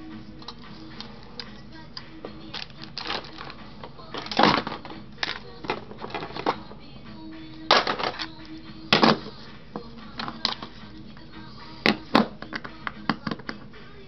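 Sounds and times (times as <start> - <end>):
plastic parts clicking and clattering: 2.5 - 6.7, 7.7 - 8.4.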